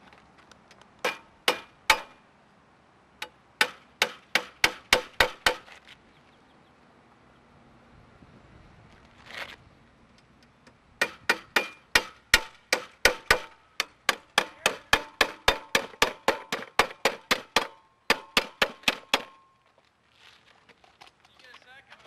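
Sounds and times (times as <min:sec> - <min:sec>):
hammer driving nails through metal: 0:01.0 - 0:02.1, 0:03.2 - 0:05.6, 0:11.0 - 0:19.5.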